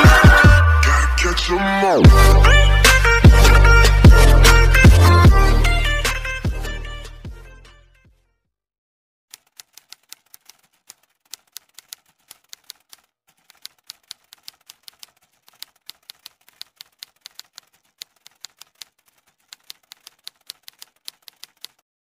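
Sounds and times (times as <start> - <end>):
typewriter key clacks: 9.4 - 21.8.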